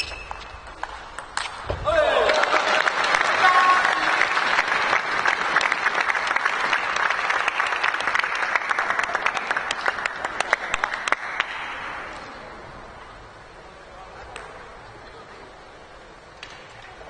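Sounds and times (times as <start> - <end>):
crowd applauding: 1.9 - 12.1.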